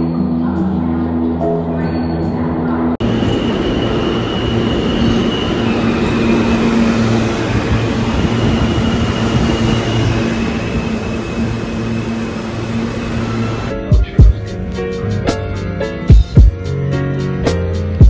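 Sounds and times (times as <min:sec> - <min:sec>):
high wheel squeal: 0:03.0 - 0:13.7
train wheels rumbling on rails: 0:03.0 - 0:15.2.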